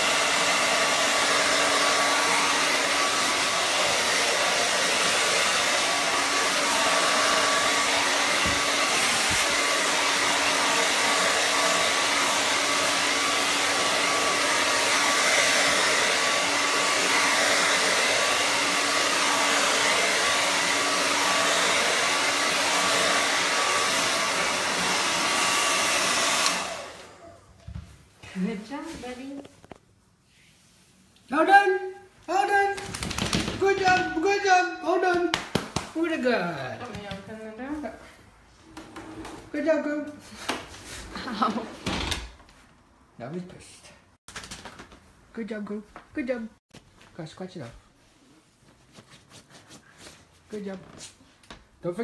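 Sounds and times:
hair dryer blowing: 0.0 - 27.6, 32.3 - 38.0, 38.6 - 42.0.

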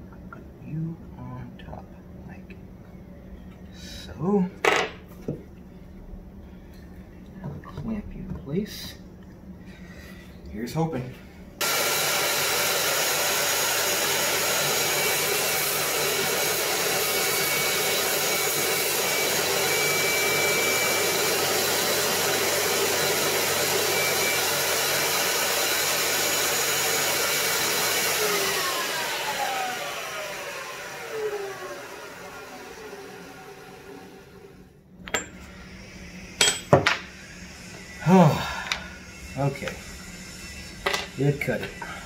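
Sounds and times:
power tool cutting wood: 11.6 - 34.6, 37.0 - 42.0
motor whine spinning down: 11.6 - 34.7.

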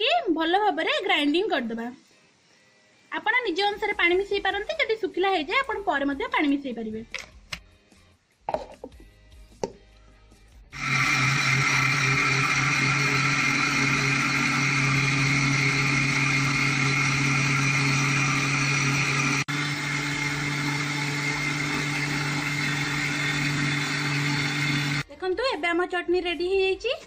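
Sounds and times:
mixer grinder motor whirring: 10.8 - 25.1.

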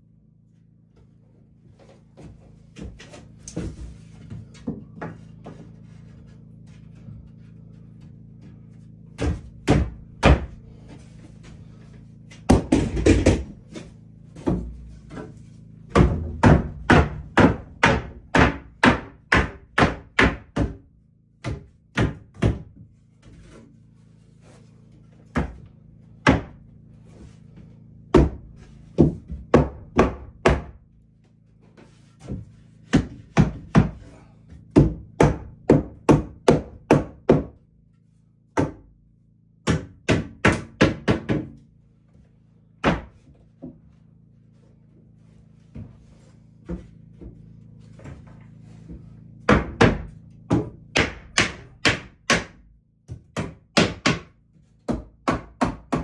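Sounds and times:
hammer striking wood: 9.2 - 10.5, 15.9 - 20.8, 21.4 - 22.7, 26.2 - 26.6, 29.0 - 30.8, 32.2 - 34.1, 34.7 - 37.6, 39.6 - 41.6, 42.8 - 43.2, 49.5 - 56.0.

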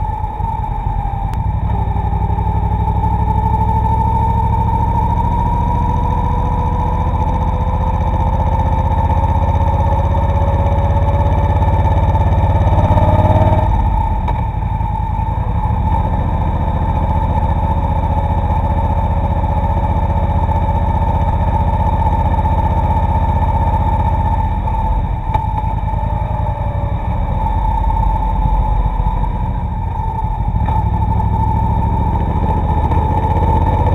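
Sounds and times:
motorcycle engine running: 0.0 - 33.9
steady high whine: 0.0 - 33.9.

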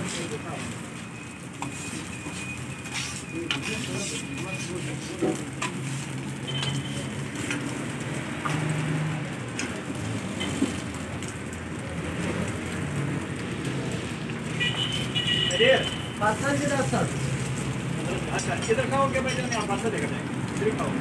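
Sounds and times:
food sizzling on griddle: 0.0 - 21.0
metal tongs clicking on griddle: 6.6 - 7.8, 9.5 - 9.8.

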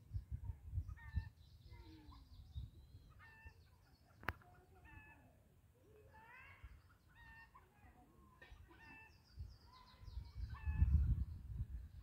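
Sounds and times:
wind rumble on microphone: 0.0 - 3.4, 9.4 - 12.0.

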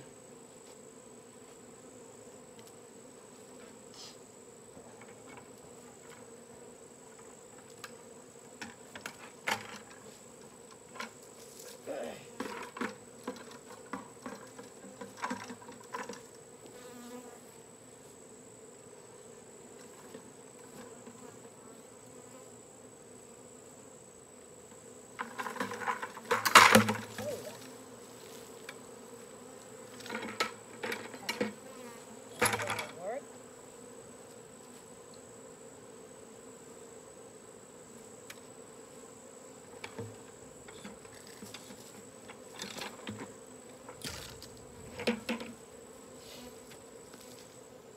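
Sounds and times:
bee swarm buzzing: 0.0 - 47.9
rustling and knocks: 12.4 - 16.3, 25.2 - 27.6, 29.9 - 31.6, 39.8 - 45.6.

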